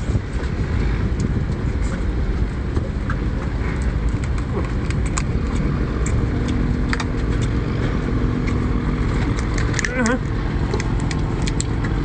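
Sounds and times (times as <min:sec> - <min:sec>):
steady low rumble: 0:00.0 - 0:12.0
crayfish shell cracking: 0:03.8 - 0:07.6, 0:08.4 - 0:12.0.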